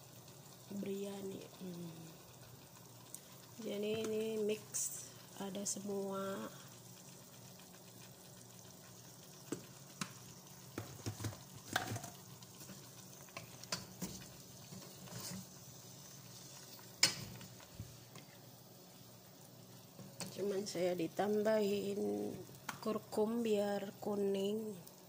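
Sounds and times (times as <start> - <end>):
faint frying sizzle: 0.0 - 25.0
wooden spatula stirring in pot: 10.7 - 18.4.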